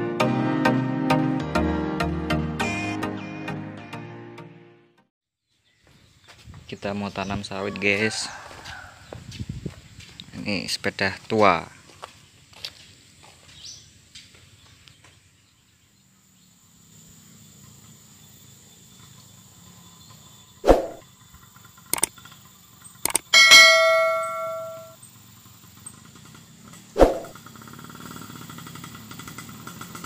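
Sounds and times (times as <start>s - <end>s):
motorcycle engine humming: 14.5s - 30.0s
sharp clicks: 21.9s - 22.1s, 23.0s - 23.4s
bell ding: 23.1s - 25.0s.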